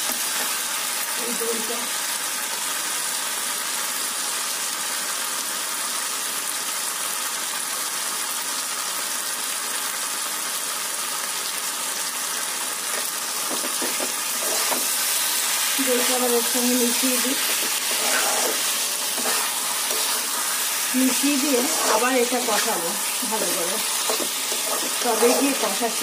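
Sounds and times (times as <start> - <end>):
food sizzling in a pan: 0.0 - 26.0
spatula scraping a pan: 12.9 - 26.0.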